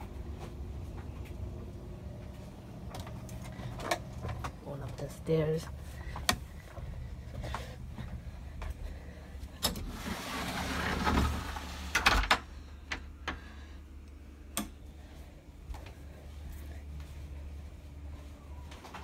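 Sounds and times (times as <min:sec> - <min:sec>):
low steady hum: 0:00.0 - 0:19.0
footsteps climbing stairs: 0:02.2 - 0:09.6.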